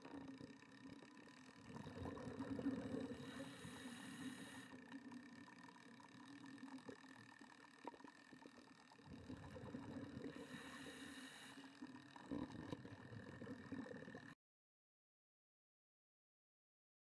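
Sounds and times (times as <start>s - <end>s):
regulator bubbles rumbling: 0.0s - 3.4s, 4.8s - 10.6s, 11.9s - 14.4s
faint steady whine: 0.0s - 14.4s
breath hissing through regulator: 3.0s - 4.9s, 10.3s - 11.9s.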